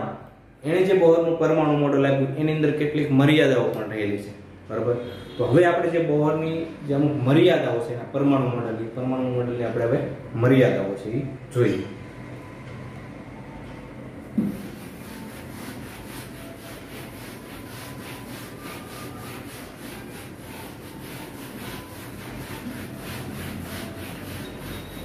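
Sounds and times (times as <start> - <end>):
duster rubbing on whiteboard: 14.4 - 25.0.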